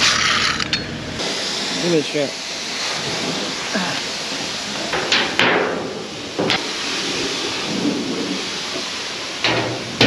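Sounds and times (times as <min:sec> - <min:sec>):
sharp metal clanks: 0:00.0 - 0:01.0
steady rushing noise: 0:00.0 - 0:10.0.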